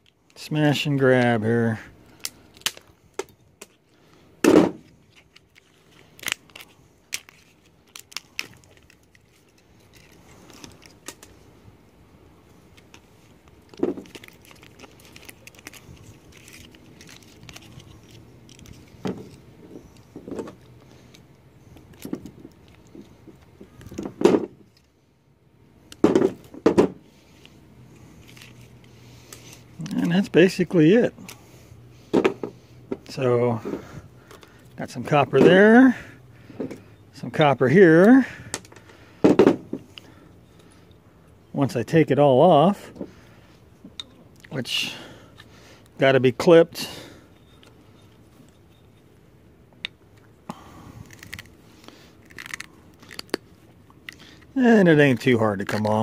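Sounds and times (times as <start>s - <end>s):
plastic cracking and snapping: 2.1s - 3.8s, 5.2s - 11.3s, 12.8s - 18.8s, 51.1s - 53.4s.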